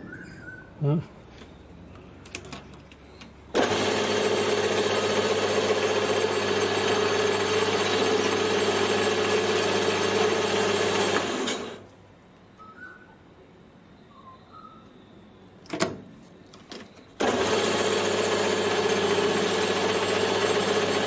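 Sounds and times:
metal lathe motor running: 0:03.6 - 0:11.8, 0:17.2 - 0:21.0.

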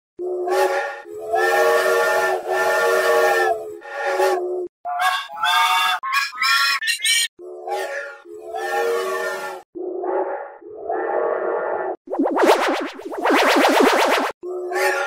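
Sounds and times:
steam locomotive whistle: 0:00.2 - 0:04.5.

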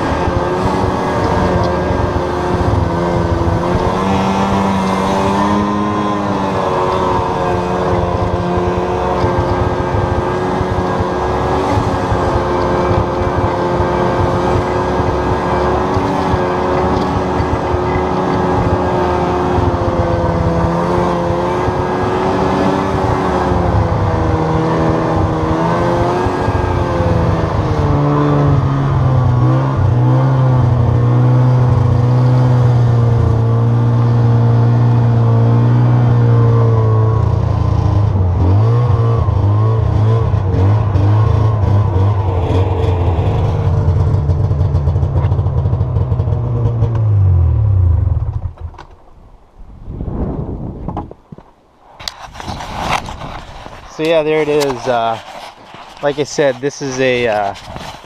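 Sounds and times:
snowmobile engine under load: 0:00.0 - 0:49.1, 0:49.9 - 0:58.0.

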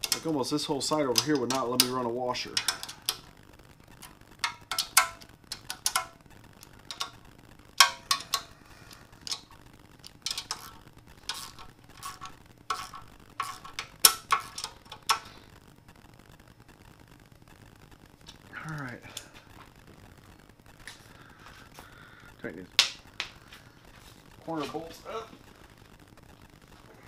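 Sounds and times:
hand ratchet clicking: 0:00.0 - 0:00.3, 0:01.0 - 0:03.2, 0:04.4 - 0:06.2, 0:07.8 - 0:08.5, 0:10.3 - 0:15.3
sharp metallic clicks: 0:00.0 - 0:03.3, 0:03.9 - 0:08.6.

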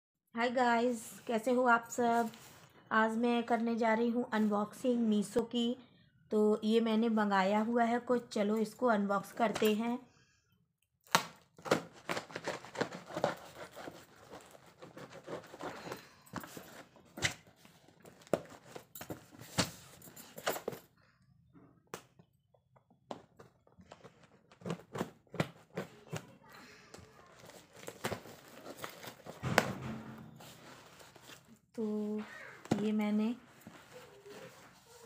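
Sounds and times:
plastic film crinkling: 0:27.3 - 0:29.5.

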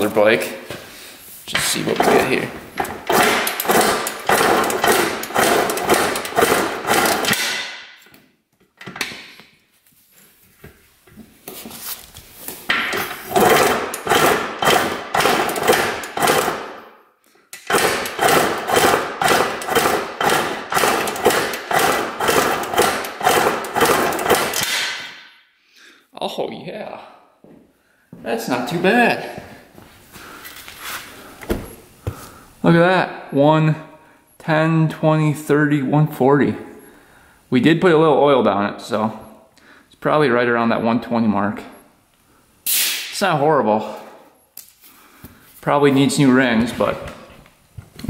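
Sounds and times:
two-stroke engine kicked over: 0:03.0 - 0:07.4, 0:13.3 - 0:16.6, 0:17.7 - 0:24.6.

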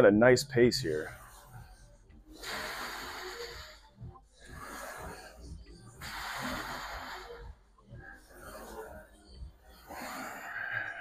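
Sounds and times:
man breathing hard: 0:02.3 - 0:11.0.

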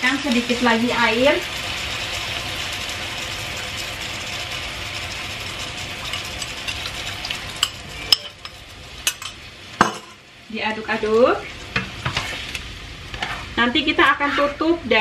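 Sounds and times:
food sizzling in a frying pan: 0:00.0 - 0:15.0
metal spoon clinking on ceramic bowl: 0:07.6 - 0:10.1.

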